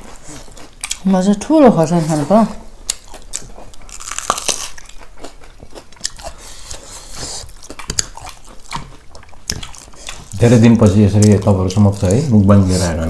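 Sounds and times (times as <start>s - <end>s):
chewing and crunching food: 0.0s - 13.0s
wet mouth clicks and smacks: 7.7s - 10.3s.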